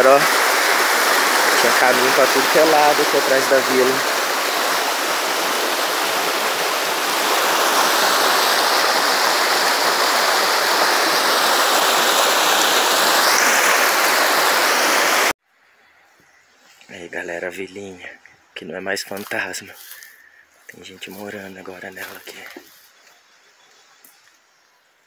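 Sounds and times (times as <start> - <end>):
stream running over stones: 0.0 - 15.3.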